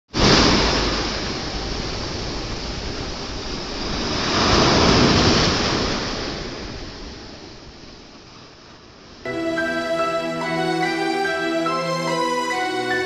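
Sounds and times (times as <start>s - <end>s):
sea waves surging onto shore: 0.2s - 7.6s.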